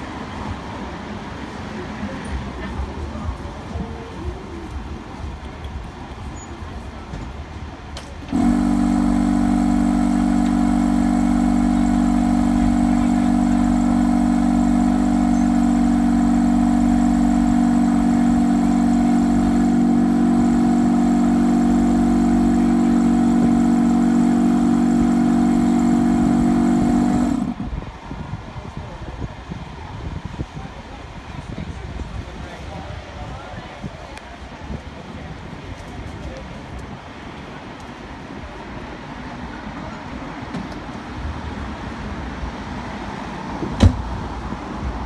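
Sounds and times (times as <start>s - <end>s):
tram machinery humming: 0.0s - 28.1s.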